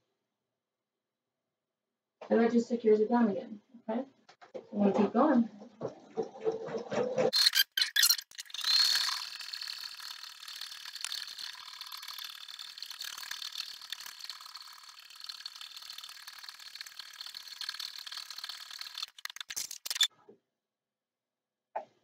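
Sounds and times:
embroidery machine stitching: 7.3 - 20.1
machine clicks: 7.3 - 20.1.

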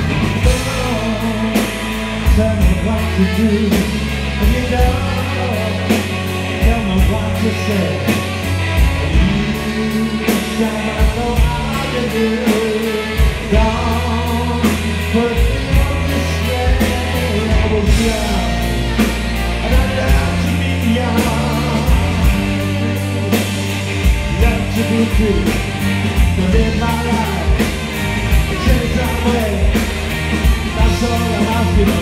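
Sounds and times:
bass guitar: 0.0 - 32.0
saxophone melody: 0.0 - 32.0
strummed electric guitar: 0.0 - 32.0
drum beat: 8.8 - 32.0.

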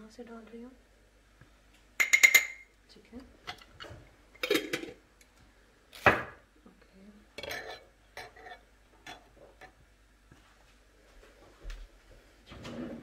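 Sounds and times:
spoon and dishes clinking on stone: 2.0 - 2.6, 7.4 - 9.7.

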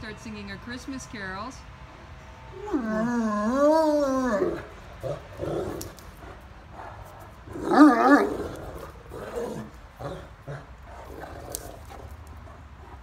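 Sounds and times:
dog warbling moan: 2.6 - 5.8, 7.5 - 10.6
dog grumbling and growling: 7.5 - 12.0.

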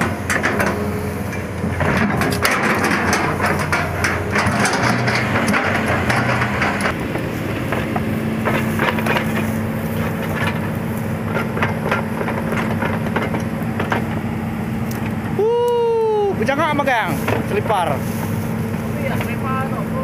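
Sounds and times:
steel track clanking: 0.0 - 14.3
excavator diesel engine running: 0.0 - 20.0.

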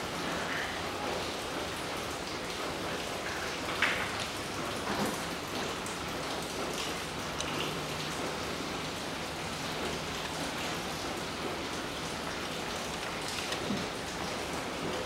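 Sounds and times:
steady rain falling: 0.0 - 15.0.

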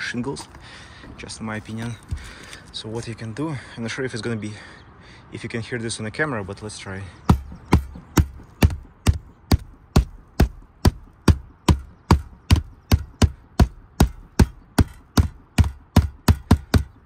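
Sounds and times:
rubber mallet knocking on roof: 7.3 - 17.0.

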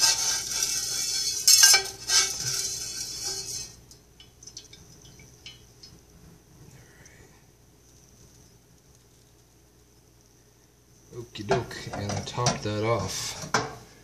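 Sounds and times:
metal spoon scraping in metal pan: 0.0 - 3.8.

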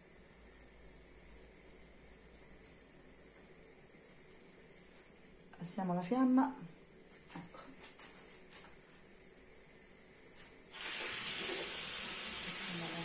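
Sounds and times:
meat sizzling in a pan: 10.7 - 13.0.

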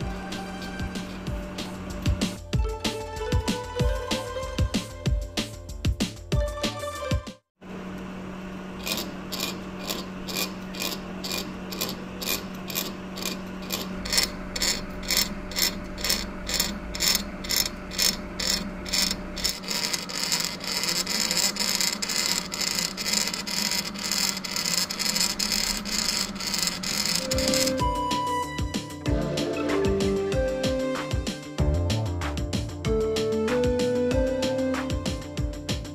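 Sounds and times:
lathe motor hum: 7.7 - 27.8
mechanical ticking: 8.8 - 27.8.

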